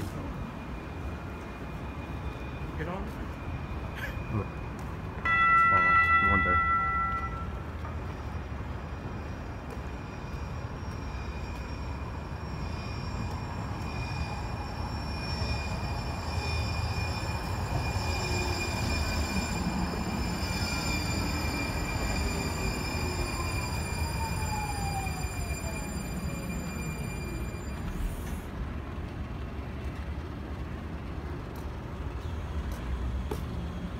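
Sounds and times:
tram rolling past: 0.0 - 33.9.

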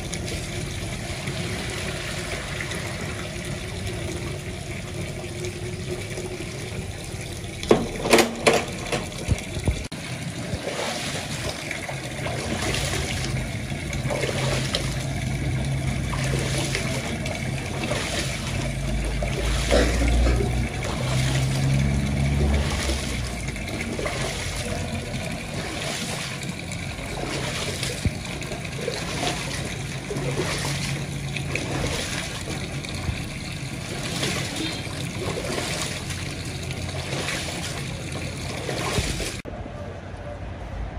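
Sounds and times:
water poured off: 0.0 - 39.5
water sloshing and splashing: 0.0 - 39.5
knocks on metal tub: 7.7 - 9.2.

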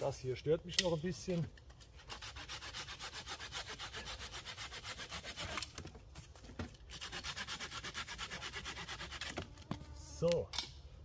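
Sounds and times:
pull saw rasping through branch: 2.0 - 5.8, 6.9 - 9.4.

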